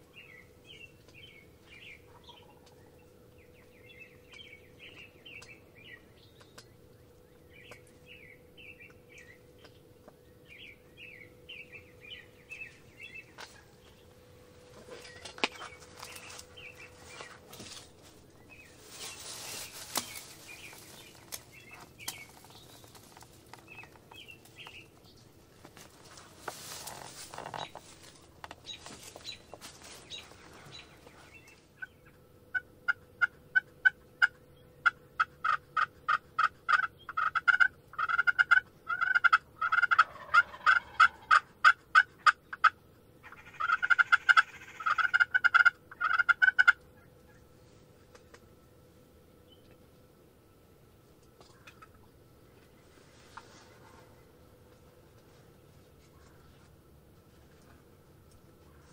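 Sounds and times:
faint small birds chirping: 0.0s - 39.1s
rustling: 13.4s - 31.6s, 52.6s - 58.9s
turkey yelping: 32.5s - 47.4s.

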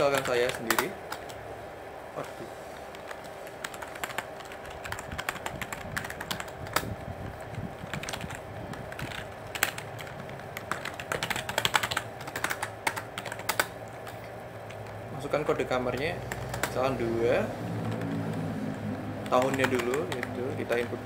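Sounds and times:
computer keyboard typing: 0.0s - 1.4s, 2.8s - 21.0s.

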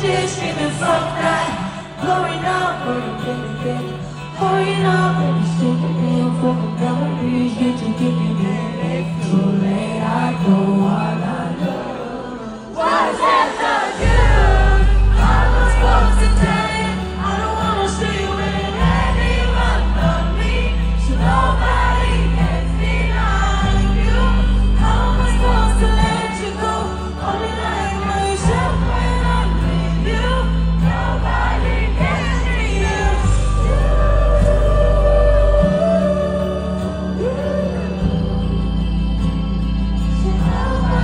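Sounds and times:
woman singing into a microphone: 0.0s - 41.0s
band music: 12.8s - 41.0s
heavy deep bass: 14.0s - 17.6s.

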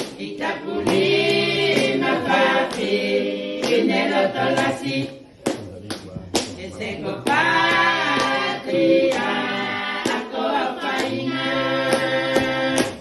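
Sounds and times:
sharp hand claps: 0.0s - 3.0s, 3.6s - 4.8s, 5.4s - 8.5s, 9.1s - 9.3s, 10.0s - 13.0s
women singing together: 0.0s - 5.2s, 6.6s - 13.0s.

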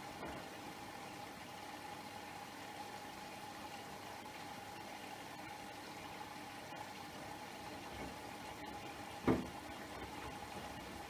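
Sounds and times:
washing machine hum: 0.0s - 11.0s
water sloshing in washing machine: 0.0s - 11.0s
wet laundry swish-thump: 9.2s - 9.5s.

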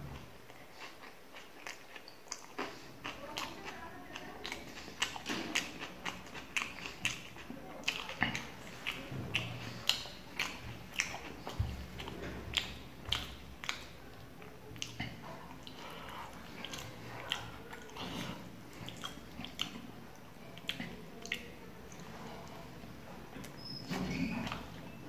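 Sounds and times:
person chewing food: 0.0s - 25.0s
wet lip smacks and mouth clicks: 0.8s - 3.5s, 4.4s - 14.0s, 14.8s - 22.1s.

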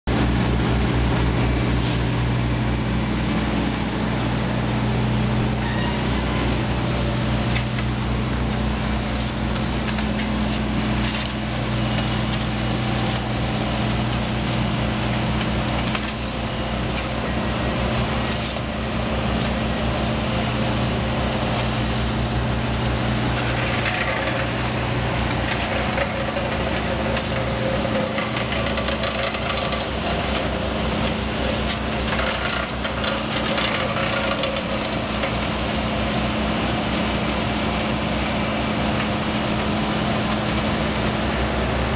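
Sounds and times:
diesel engine running: 0.0s - 41.9s
clattering and scraping: 21.5s - 35.5s.

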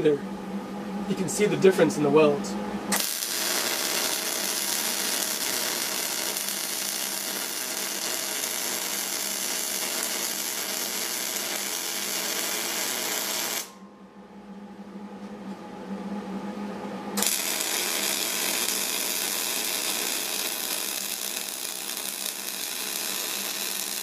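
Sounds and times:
low steady hum: 0.0s - 9.5s, 13.2s - 23.8s
welding arc sizzling: 2.9s - 13.8s, 17.2s - 24.0s.

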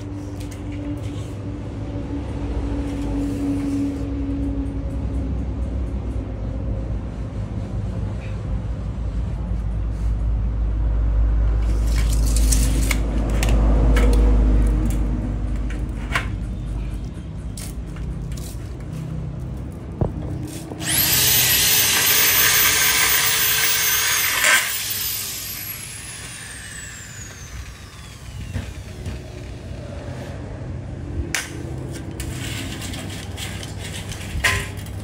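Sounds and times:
cordless drill drilling through metal: 20.8s - 29.7s.

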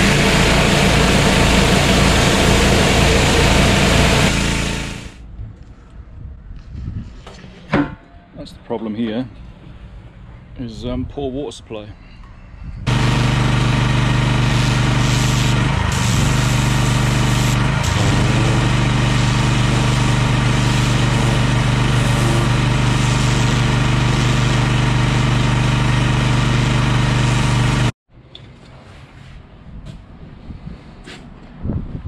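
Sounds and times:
pressure washer engine hum: 0.0s - 5.2s, 12.9s - 28.0s.

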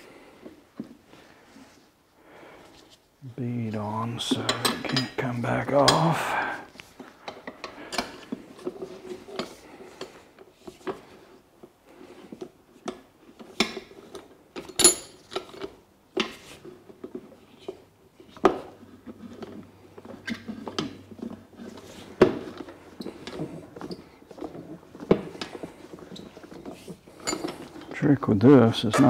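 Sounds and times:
tire levers clinking on wheel rim: 12.9s - 16.4s, 22.4s - 28.1s.

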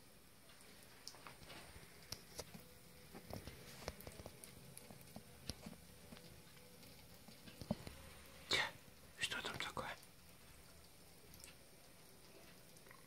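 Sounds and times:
small clicks and taps: 0.5s - 8.0s, 10.0s - 11.7s.

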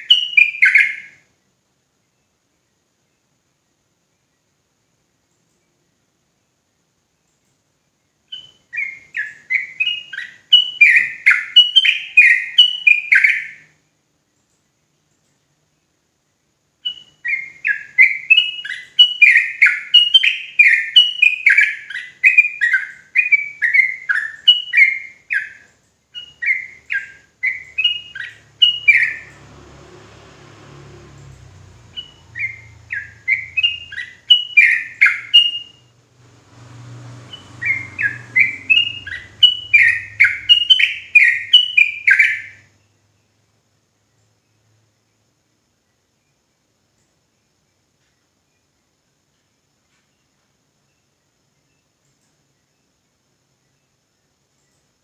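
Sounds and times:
faint low rumble: 27.2s - 34.6s, 35.5s - 41.1s
bulbul singing chattering notes: 31.6s - 42.6s.

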